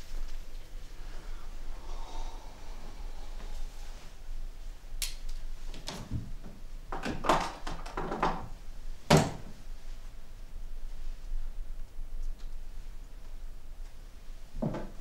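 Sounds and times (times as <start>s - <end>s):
wooden wardrobe door knocks: 9.1s - 9.5s.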